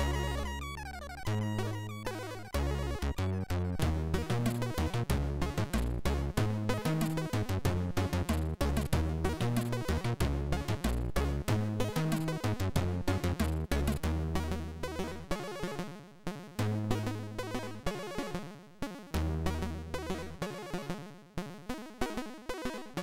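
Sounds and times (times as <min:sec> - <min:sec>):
chiptune music: 0:00.0 - 0:15.9.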